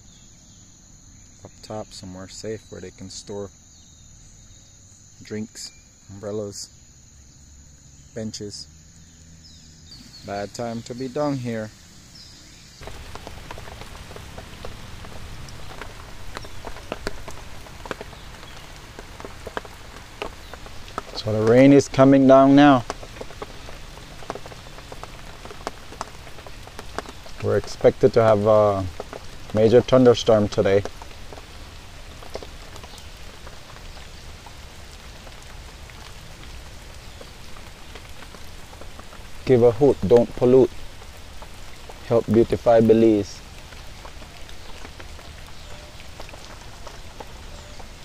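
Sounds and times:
rain falling: 0:00.0 - 0:48.0
raindrops ticking: 0:04.8 - 0:48.0
drops ticking on surfaces: 0:12.8 - 0:34.1.

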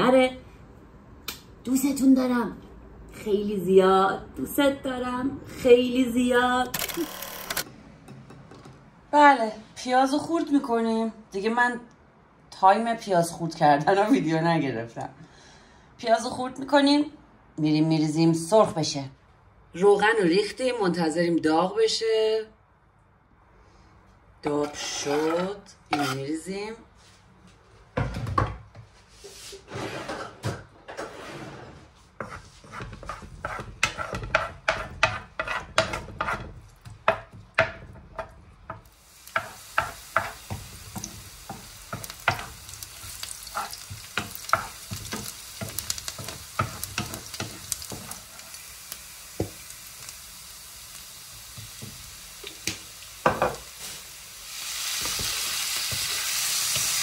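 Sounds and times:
spatula scraping pan: 0:24.4 - 0:26.4, 0:29.5 - 0:38.3, 0:39.4 - 0:48.5
food sizzling in oil: 0:38.8 - 0:57.0.

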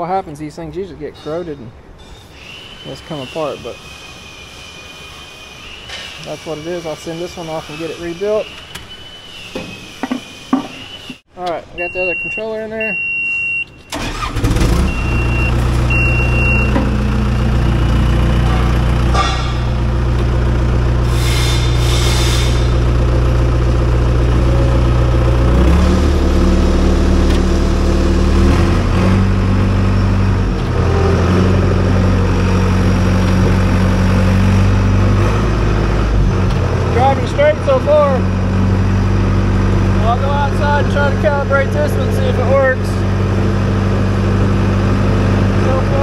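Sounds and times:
warning beeper: 0:02.4 - 0:19.6, 0:30.7 - 0:32.8
diesel engine running: 0:13.9 - 0:46.0.

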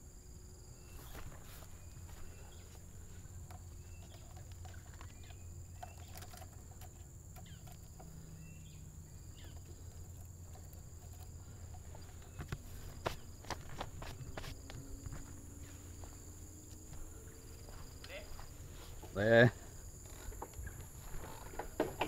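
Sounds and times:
insects droning: 0:00.0 - 0:22.0
bird chirps: 0:00.8 - 0:18.3
sharp clicks and knocks: 0:09.2 - 0:15.2, 0:20.1 - 0:22.0.

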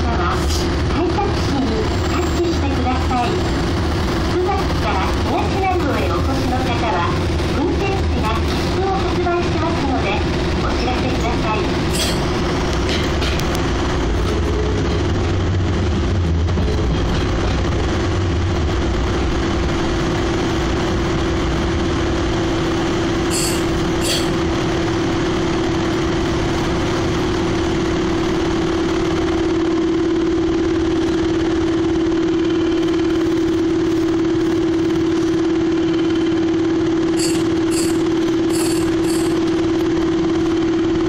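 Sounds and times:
train running rumble: 0:00.0 - 0:41.0
high ringing strikes: 0:23.3 - 0:24.4, 0:37.2 - 0:39.5.

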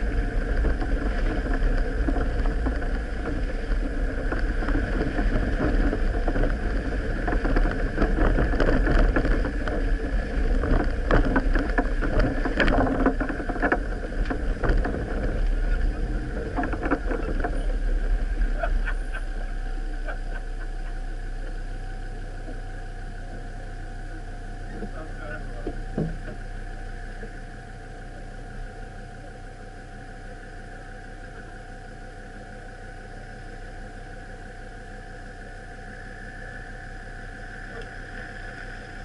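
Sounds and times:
vehicle rattles and knocks: 0:00.0 - 0:23.5, 0:24.3 - 0:30.2
off-road vehicle engine and road noise: 0:00.0 - 0:39.0.

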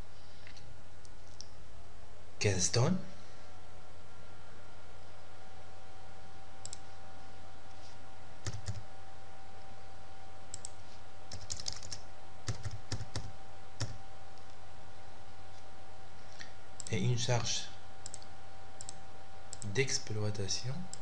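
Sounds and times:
low electrical hum: 0:00.0 - 0:21.0
keyboard keystrokes: 0:10.6 - 0:14.0.

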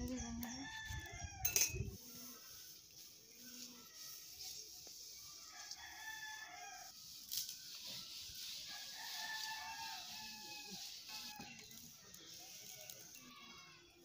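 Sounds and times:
rooster crowing: 0:05.5 - 0:07.1, 0:08.5 - 0:11.6.

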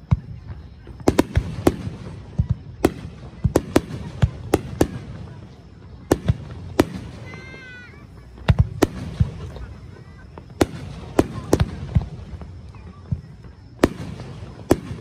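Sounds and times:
fireworks bursting with sharp bangs: 0:00.0 - 0:15.0.

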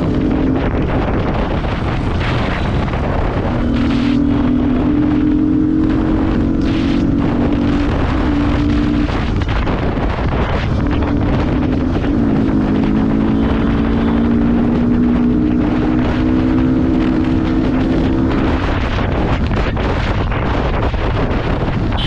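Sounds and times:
motorcycle engine running: 0:00.0 - 0:22.0
wind noise on microphone: 0:00.0 - 0:22.0.

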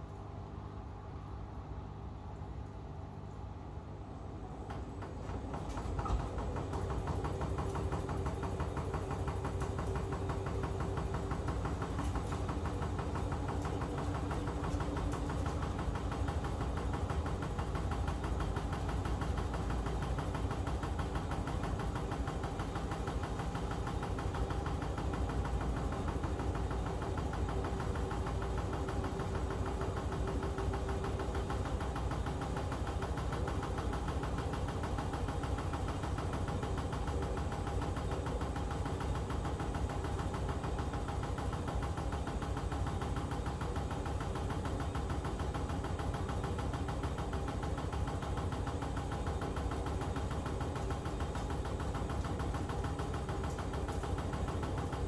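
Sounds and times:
washing machine humming: 0:00.0 - 0:55.0.

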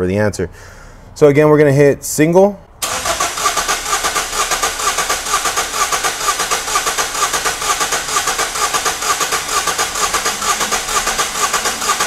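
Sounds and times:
car engine cranking: 0:02.8 - 0:12.0.

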